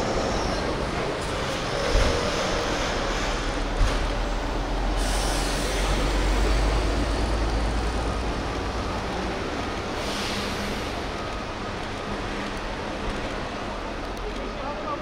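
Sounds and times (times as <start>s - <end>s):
vehicle passing hiss: 4.7s - 7.0s.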